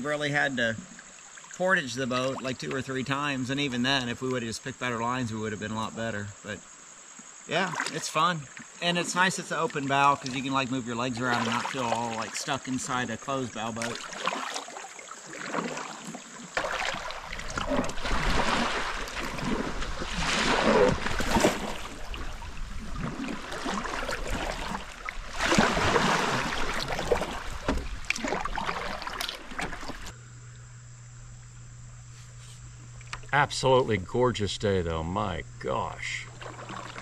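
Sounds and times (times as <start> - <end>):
water splashing around kayak: 0.0 - 4.8, 7.5 - 30.2, 36.1 - 37.0
steady hum: 16.6 - 37.0.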